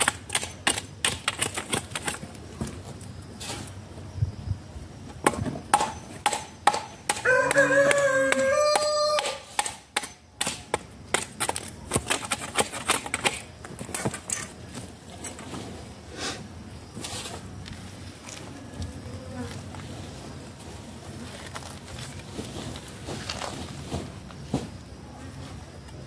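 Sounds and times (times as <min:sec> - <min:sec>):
hand tool knocking and scraping: 0:05.2 - 0:15.6.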